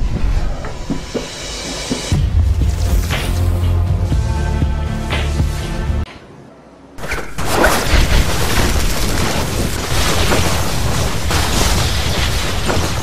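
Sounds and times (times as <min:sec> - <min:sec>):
electrical crackling: 0:07.0 - 0:13.0.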